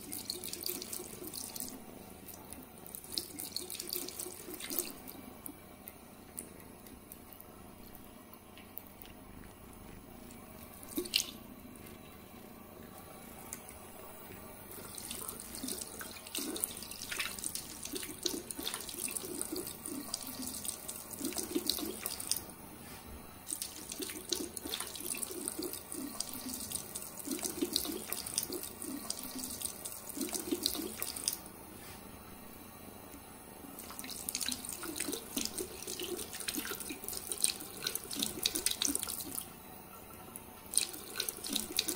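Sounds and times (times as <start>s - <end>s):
water running into sink: 0.0s - 5.6s, 10.3s - 11.5s, 12.9s - 22.5s, 23.5s - 31.5s, 33.7s - 41.9s.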